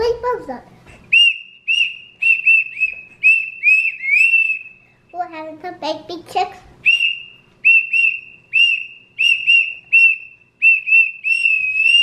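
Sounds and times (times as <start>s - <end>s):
toy whistle toots: 1.1s - 4.8s, 6.8s - 12.0s.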